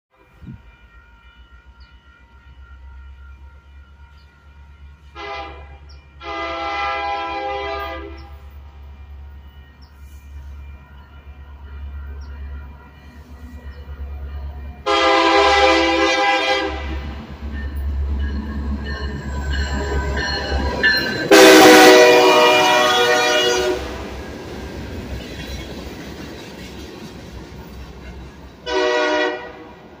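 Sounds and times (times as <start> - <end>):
diesel locomotive engines rumbling: 0.1 - 30.0
train air horn blasts: 5.0 - 8.5, 14.8 - 17.2, 21.3 - 24.2, 28.6 - 29.8.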